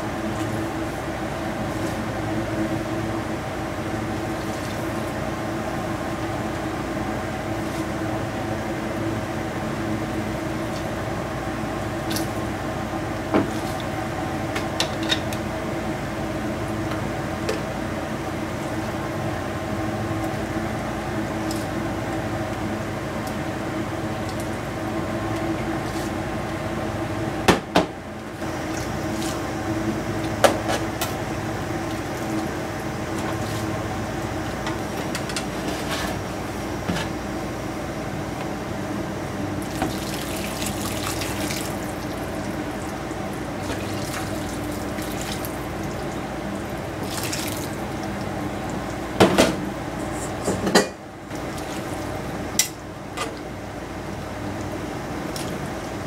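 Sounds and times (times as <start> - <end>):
steady hum: 0.0 - 56.0
liquid pouring and splashing: 39.6 - 48.9.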